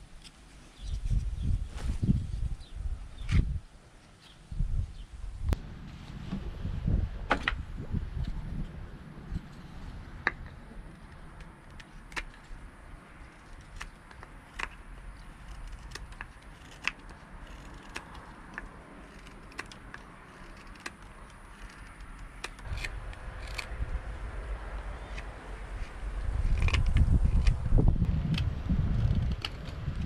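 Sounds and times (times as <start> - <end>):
low steady rumble: 4.5 - 30.0
knife slicing wood clicks: 15.4 - 23.7.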